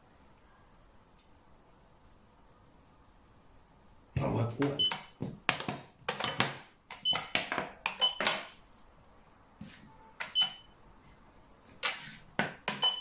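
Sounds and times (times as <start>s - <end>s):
chess clock beeps: 4.7s - 5.2s, 7.9s - 8.3s, 10.2s - 10.7s, 12.7s - 13.0s.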